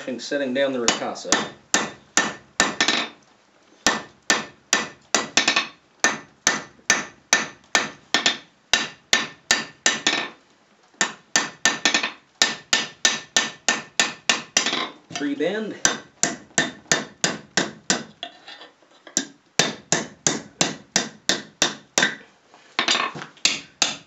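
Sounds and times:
hammer striking metal on anvil: 0:00.9 - 0:03.1, 0:03.9 - 0:10.3, 0:11.0 - 0:14.9, 0:15.8 - 0:18.1, 0:19.2 - 0:22.2, 0:22.8 - 0:24.0.

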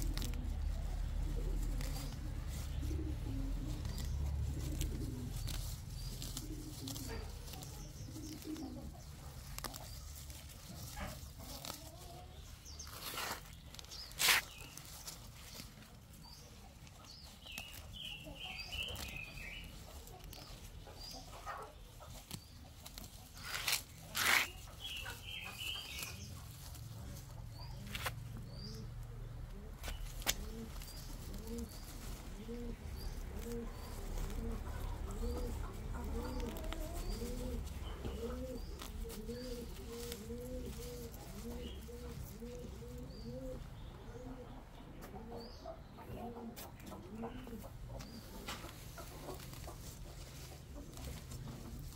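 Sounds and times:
loud rustle: 0:00.0 - 0:21.2, 0:22.0 - 0:28.8
pigeon cooing: 0:00.0 - 0:51.9.

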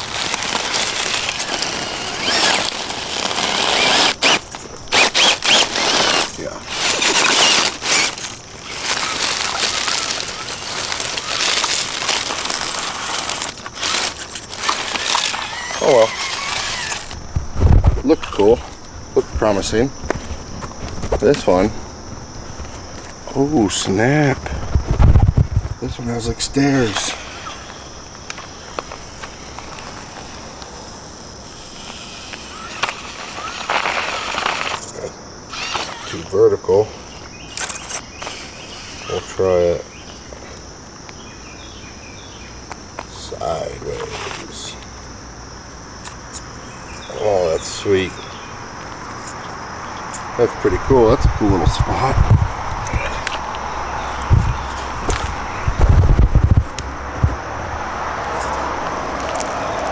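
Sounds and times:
crunching and scraping on stone: 0:00.0 - 0:18.9, 0:31.6 - 0:36.2, 0:52.8 - 0:57.4, 0:59.1 - 0:59.9
rustling noise: 0:00.0 - 0:26.0, 0:51.3 - 0:57.8
crickets droning: 0:00.0 - 0:59.9.

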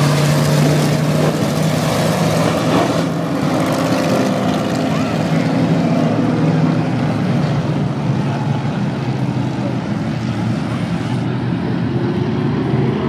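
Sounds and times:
race car engines roaring: 0:00.0 - 0:13.0.

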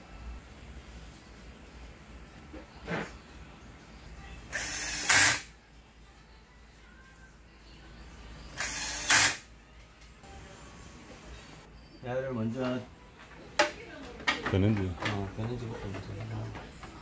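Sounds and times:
cordless drill driving screws: 0:04.6 - 0:05.4, 0:08.6 - 0:09.4.

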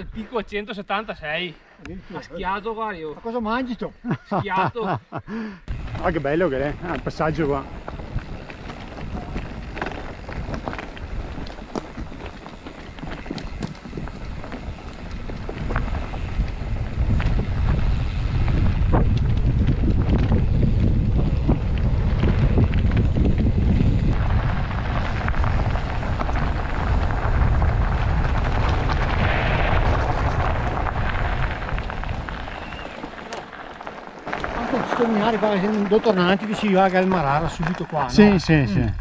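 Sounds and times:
wind noise on microphone: 0:05.7 - 0:35.6, 0:38.1 - 0:39.0
bike tyres rolling over trail: 0:05.7 - 0:39.0.

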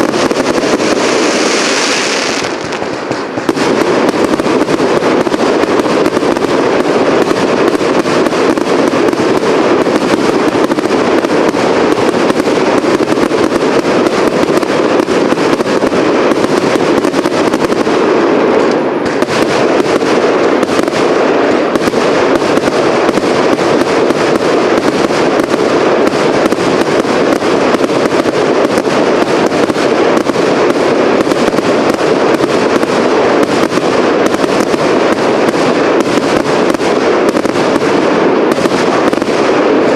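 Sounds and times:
firework shots and crackle: 0:00.0 - 0:39.9.

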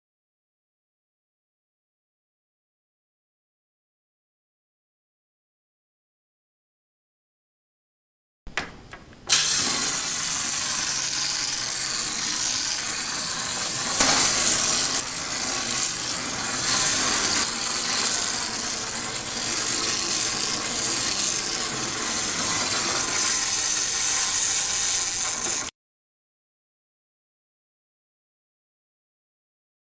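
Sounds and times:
clockwork toy motor whirring: 0:09.3 - 0:25.7.

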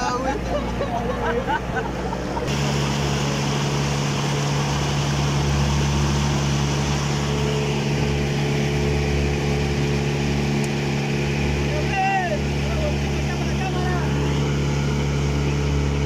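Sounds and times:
outboard motor running: 0:00.0 - 0:16.0
water spray rushing along hull: 0:01.9 - 0:16.0.

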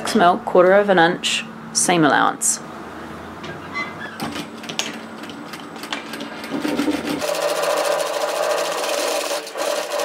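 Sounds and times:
sewing machine stitching: 0:05.2 - 0:10.0.

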